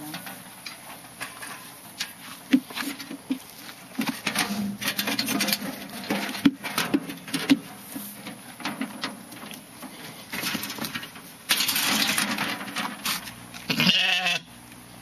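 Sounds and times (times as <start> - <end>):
hooves knocking on metal panels: 2.5 - 13.2.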